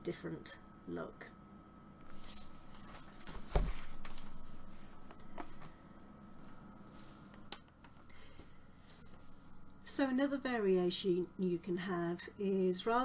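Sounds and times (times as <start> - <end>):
book rustling and sliding: 2.0 - 5.8, 6.4 - 7.5, 8.4 - 9.6.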